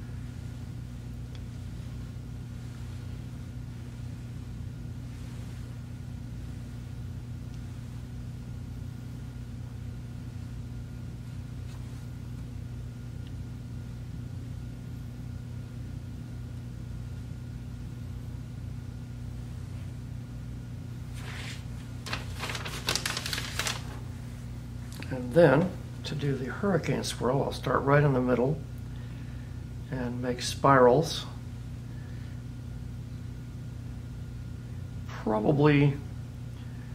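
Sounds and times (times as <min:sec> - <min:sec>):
low hum of room machinery: 0:00.0 - 0:36.9
paper towel crinkling: 0:21.1 - 0:25.9.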